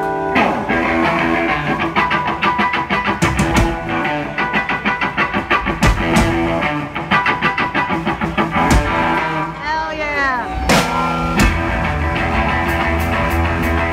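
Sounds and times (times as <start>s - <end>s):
rock band playing: 0.0s - 13.9s
heavy low drum hits: 8.6s - 9.2s, 10.7s - 13.2s.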